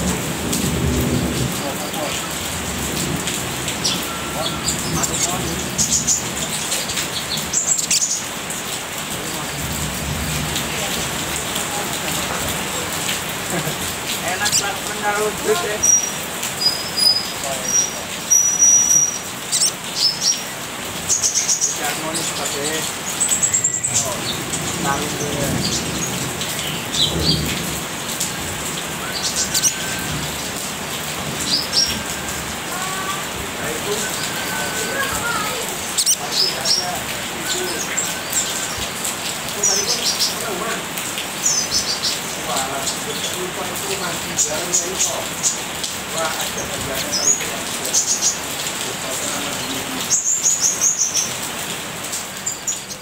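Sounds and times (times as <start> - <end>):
high-pitched bird chirps: 15.8 - 20.5, 34.0 - 36.8.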